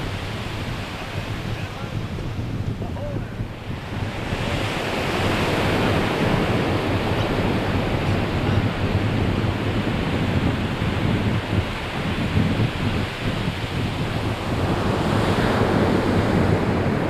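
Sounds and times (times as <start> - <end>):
ocean surf washing on beach: 0.0 - 17.0
wind rumbling on microphone: 0.0 - 17.0.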